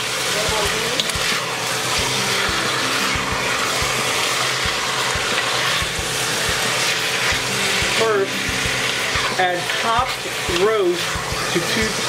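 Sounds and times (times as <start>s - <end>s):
beef sizzling in hot oil: 0.0s - 12.0s
wooden spoon stirring: 4.1s - 12.0s.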